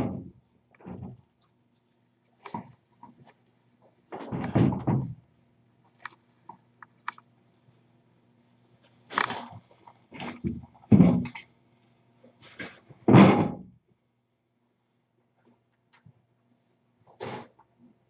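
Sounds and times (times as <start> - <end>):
faint steady hum: 0.0 - 18.0
knocks and thumps: 4.1 - 5.2, 10.2 - 11.4, 12.5 - 13.7.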